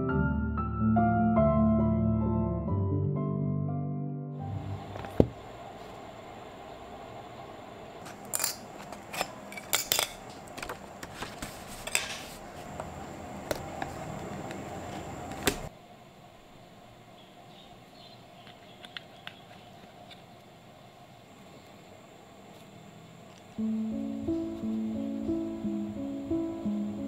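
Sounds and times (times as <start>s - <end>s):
sketchbook rustling: 11.0s - 12.8s.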